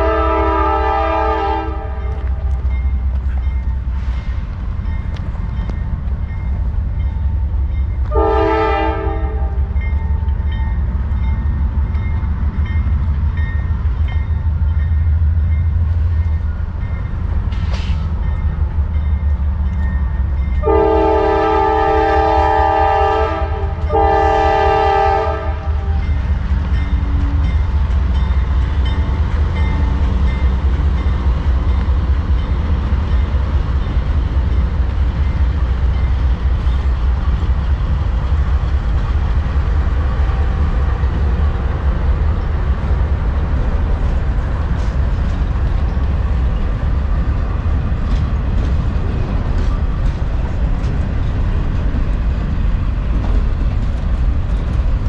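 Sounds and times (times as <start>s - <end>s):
locomotive air horn blasts: 0.0s - 2.5s, 8.1s - 9.7s, 20.6s - 26.1s
train rumbling: 0.0s - 55.0s.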